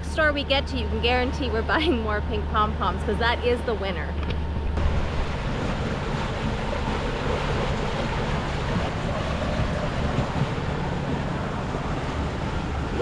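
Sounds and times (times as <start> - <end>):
wind buffeting microphone: 4.3 - 13.0
sea water rushing: 4.4 - 13.0.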